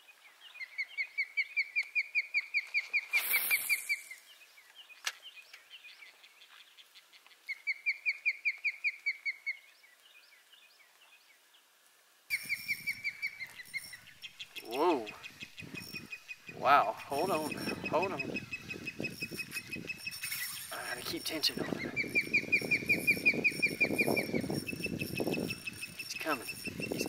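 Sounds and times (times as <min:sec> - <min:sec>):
bird whistling calls: 0:00.6 - 0:04.2, 0:12.3 - 0:27.0.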